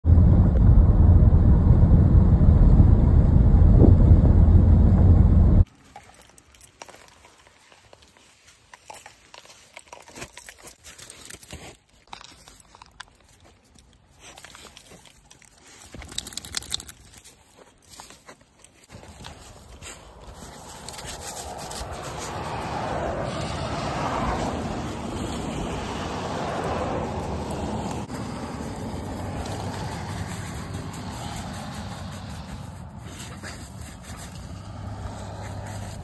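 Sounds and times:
car road and wind rumble: 0:00.0 - 0:05.7, 0:19.2 - 0:36.0
dog steps on packed snow: 0:17.1 - 0:22.8, 0:28.1 - 0:36.0.

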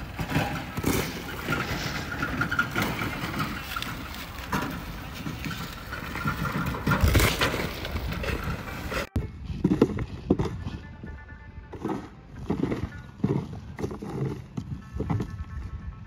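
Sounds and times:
dried corn clattering: 0:00.0 - 0:10.8.

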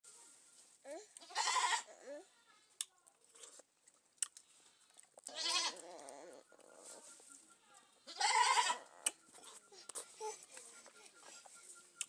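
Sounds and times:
goat bleating: 0:01.2 - 0:01.9, 0:05.3 - 0:06.4, 0:08.1 - 0:09.1.

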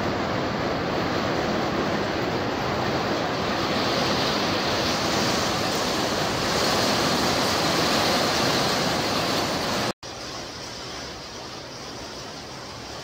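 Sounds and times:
heavy rain on roof: 0:00.0 - 0:13.0.

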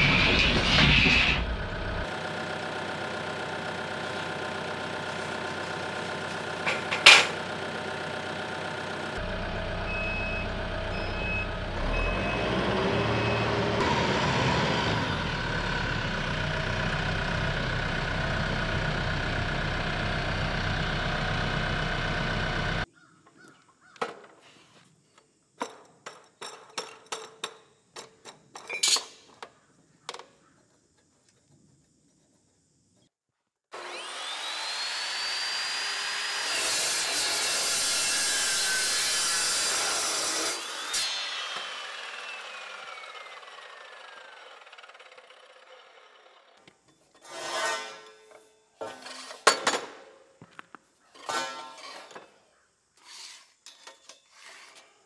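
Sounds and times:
chop saw cutting steel: 0:00.0 - 0:02.0, 0:06.4 - 0:07.4, 0:33.7 - 0:46.6, 0:47.2 - 0:49.6
tractor diesel engine running: 0:00.0 - 0:22.9.

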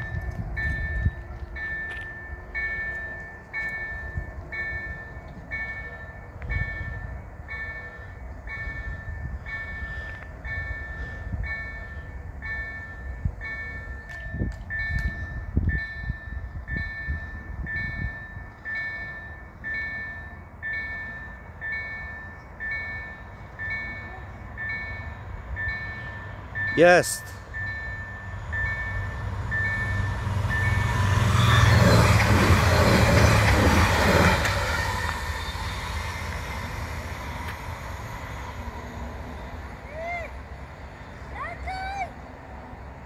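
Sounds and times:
wind buffeting microphone: 0:00.0 - 0:02.5
level crossing warning bell: 0:00.0 - 0:34.9.

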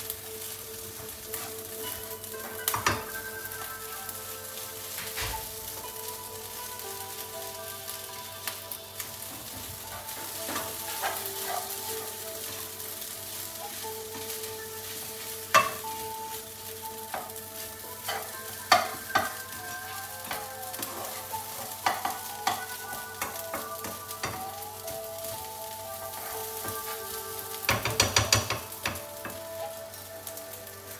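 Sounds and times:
fried rice sizzling in a pan: 0:00.0 - 0:30.9
spatula scraping a pan: 0:00.4 - 0:04.1, 0:09.2 - 0:16.4, 0:17.0 - 0:24.4, 0:26.0 - 0:30.4
spatula clacking on a pan: 0:01.3 - 0:03.8, 0:08.4 - 0:12.6, 0:15.2 - 0:16.1, 0:17.0 - 0:17.4, 0:18.0 - 0:25.3, 0:26.1 - 0:29.8.

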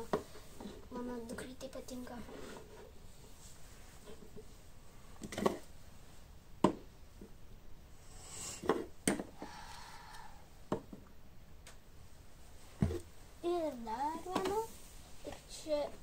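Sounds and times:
faint rustling: 0:00.0 - 0:06.4.

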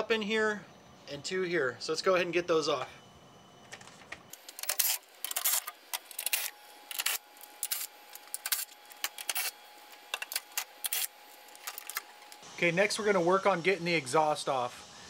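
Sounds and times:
screws clicking and rattling: 0:04.4 - 0:09.5.

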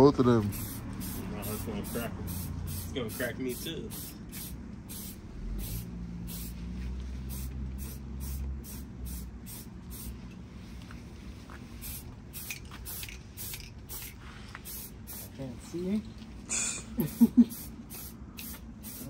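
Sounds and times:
spray paint hissing: 0:00.4 - 0:06.6, 0:07.2 - 0:10.2, 0:11.8 - 0:15.5, 0:17.0 - 0:19.0.

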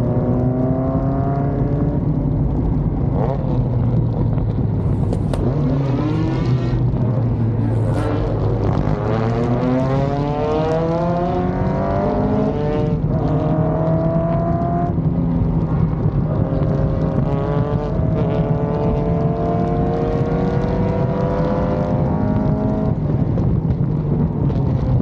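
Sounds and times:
racing car engine accelerating: 0:05.1 - 0:15.4, 0:16.1 - 0:23.0.

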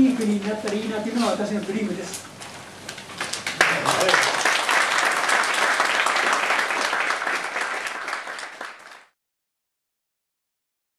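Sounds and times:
audience applauding: 0:03.2 - 0:09.2.

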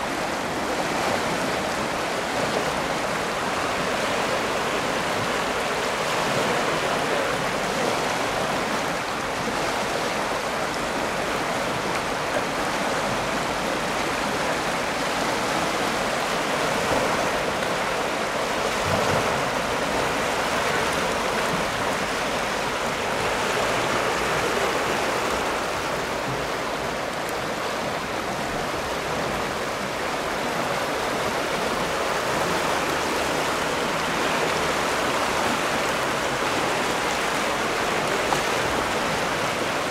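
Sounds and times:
floodwater rushing: 0:00.0 - 0:39.9.

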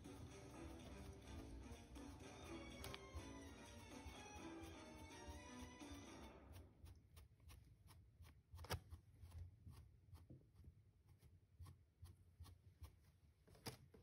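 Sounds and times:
comb brushing through fur: 0:00.0 - 0:14.0
comb tapping on wooden desk: 0:00.6 - 0:04.1.

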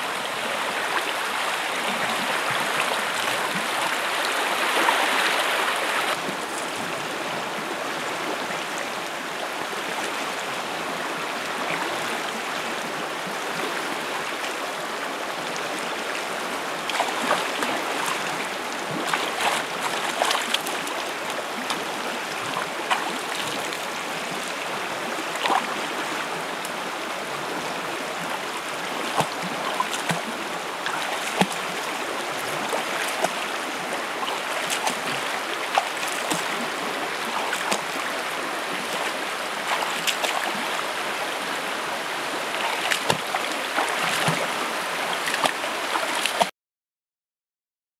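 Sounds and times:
river rushing over stones: 0:00.0 - 0:46.5
foot slapping water: 0:16.9 - 0:21.0, 0:22.5 - 0:23.8, 0:29.0 - 0:31.8, 0:32.5 - 0:33.4, 0:34.3 - 0:36.6, 0:37.2 - 0:38.1, 0:38.7 - 0:40.9, 0:42.5 - 0:46.5
hands splashing water: 0:18.9 - 0:20.9, 0:34.4 - 0:36.5, 0:38.8 - 0:40.6, 0:42.6 - 0:44.5, 0:45.1 - 0:46.5.

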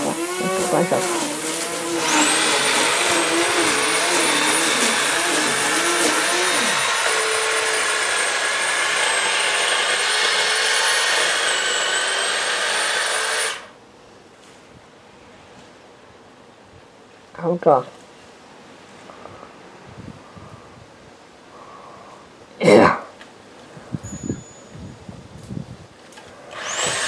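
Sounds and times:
electric power tool motor whining: 0:00.0 - 0:13.7, 0:26.5 - 0:27.0.

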